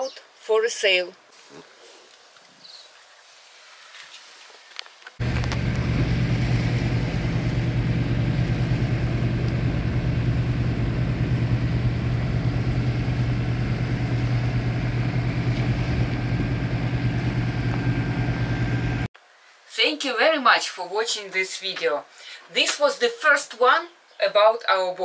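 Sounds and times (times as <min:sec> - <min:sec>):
boat diesel engine droning: 0:05.2 - 0:19.1.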